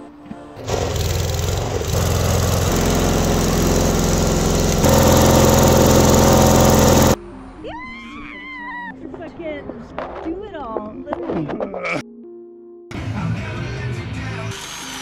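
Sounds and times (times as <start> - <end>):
arc welding: 0.6 - 7.2
engine running: 0.6 - 7.2.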